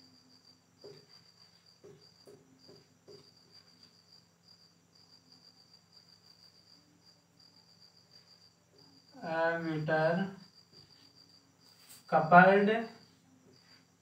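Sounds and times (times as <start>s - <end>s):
cricket trilling: 0.0s - 14.0s
marker writing on whiteboard: 0.8s - 4.0s.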